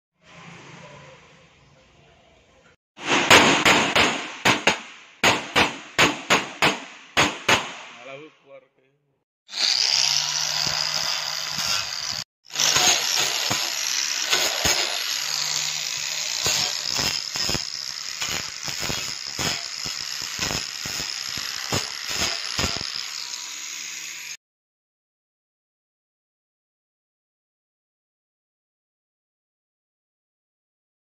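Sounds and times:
grinder disc scraping metal: 9.5 - 23.4
angle grinder whining: 9.5 - 24.4.

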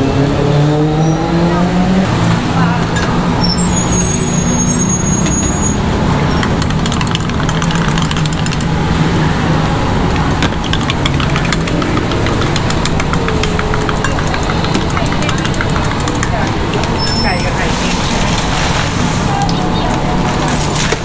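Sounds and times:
street traffic: 0.0 - 21.0
vehicle engine humming: 0.0 - 21.0
sharp clicks and clinks: 10.5 - 17.4.

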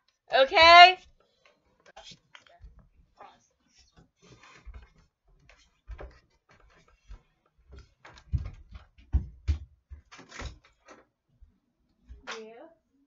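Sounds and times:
objects knocking and bumping: 4.2 - 11.0.

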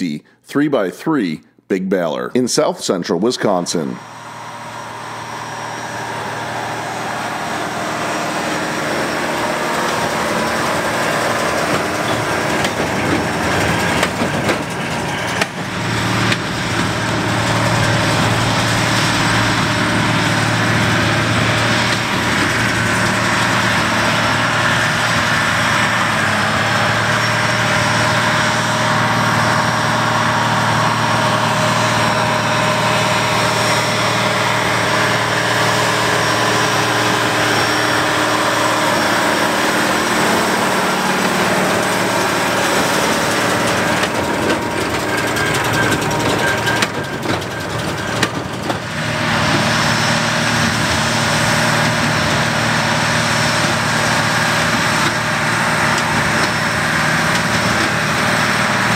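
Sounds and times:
tractor diesel engine running: 2.6 - 58.9.

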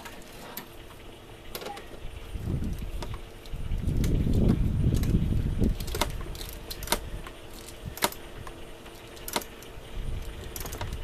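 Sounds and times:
torque wrench ratchet clicks: 4.9 - 11.0.

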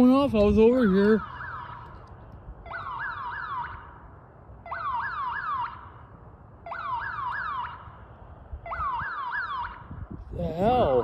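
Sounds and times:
alarm siren whooping: 1.1 - 2.0, 2.6 - 4.0, 4.6 - 6.0, 6.6 - 8.0, 8.6 - 11.0.

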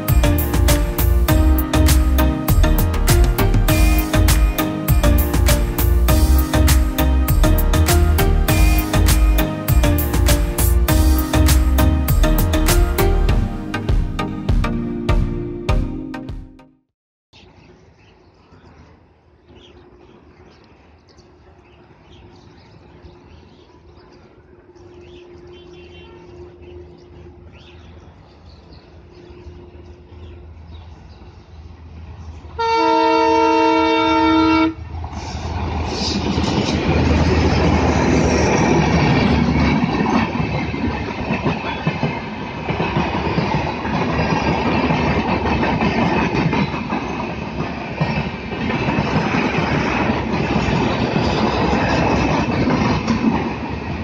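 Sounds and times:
diesel locomotive engine: 0.0 - 14.4, 19.5 - 54.0
train horn blast: 32.6 - 34.9
train wheels clattering on rails: 35.6 - 54.0.

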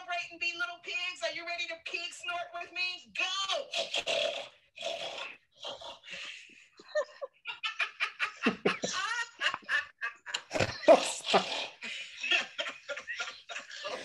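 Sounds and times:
children snorting through phone: 3.7 - 6.3, 10.5 - 12.0
children laughing: 6.2 - 14.0.

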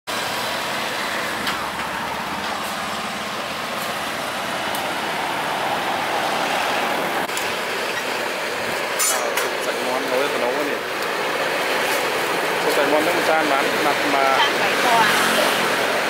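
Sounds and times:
vehicle passing: 0.1 - 8.7, 10.7 - 16.0
street traffic noise: 0.1 - 16.0.

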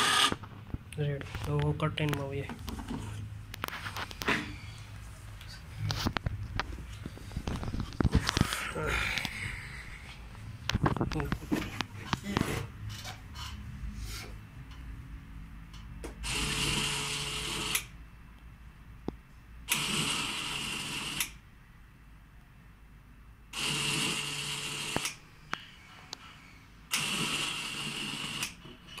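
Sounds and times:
small electric motor running: 0.0 - 0.4, 16.3 - 17.8.

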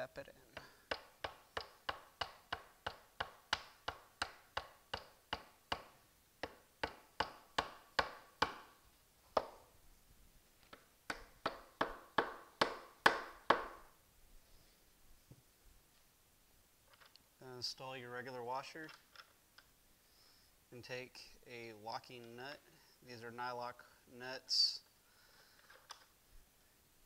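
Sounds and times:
rubber mallet tapping bolt: 0.9 - 8.7.

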